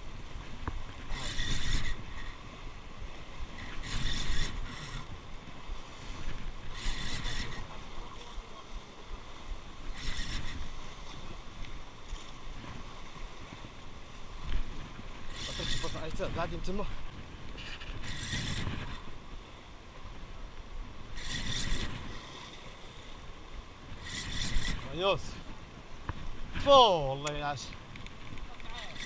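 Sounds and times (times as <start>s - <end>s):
surf: 0.0s - 29.0s
wind: 0.0s - 29.0s
fishing reel whirring: 0.4s - 20.2s, 20.8s - 25.5s, 26.2s - 29.0s.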